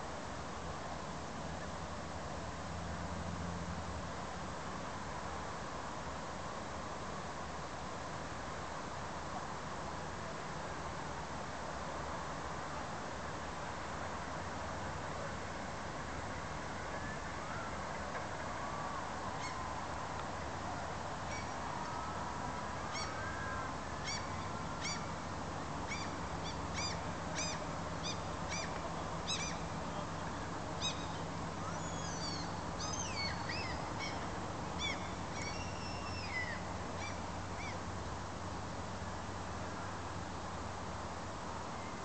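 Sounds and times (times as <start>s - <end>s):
low hum and hiss: 0.0s - 42.0s
gulls calling: 25.9s - 37.8s.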